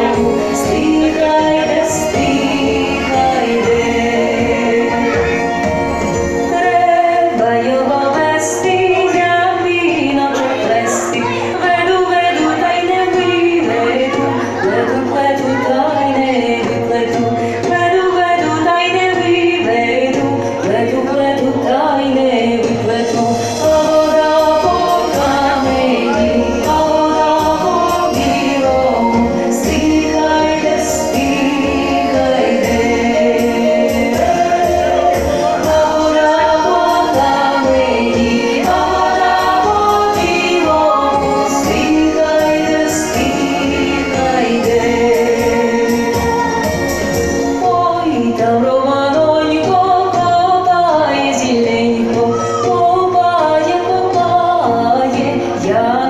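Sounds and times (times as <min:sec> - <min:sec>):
choir singing: 0:00.0 - 0:16.7, 0:22.9 - 0:49.8
instrumental accompaniment: 0:00.0 - 0:56.0.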